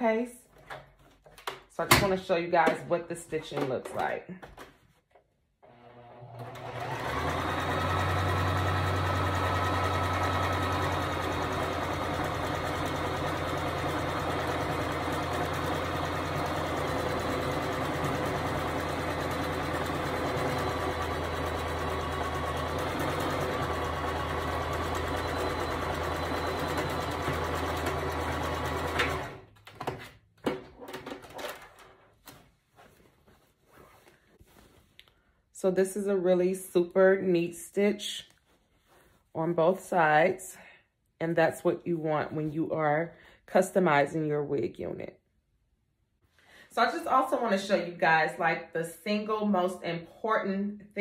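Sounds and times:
sewing machine running: 5.6s - 29.4s.

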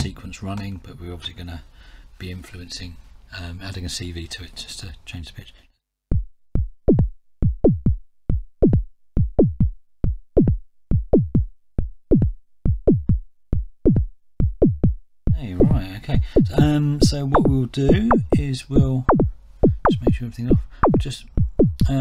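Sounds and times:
synth bass drum kicks: 6.1s - 22.0s.

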